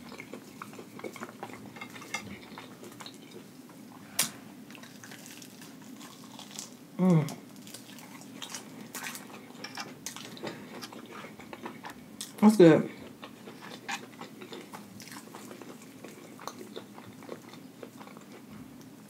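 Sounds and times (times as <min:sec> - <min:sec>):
soft chewing and mouth clicks: 0:00.0 - 0:03.8, 0:04.7 - 0:19.0
person humming: 0:07.0 - 0:07.4.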